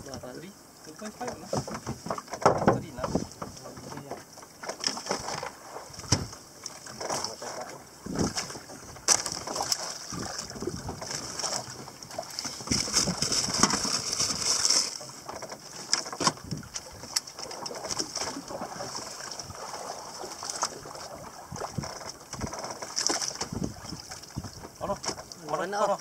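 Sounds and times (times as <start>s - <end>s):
water splashing against boat hull: 0.8s - 26.0s
knocks on boat: 1.2s - 14.0s, 15.2s - 16.6s, 21.5s - 25.7s
wind on microphone: 1.9s - 4.0s, 5.2s - 6.4s, 7.0s - 14.6s, 16.2s - 25.3s.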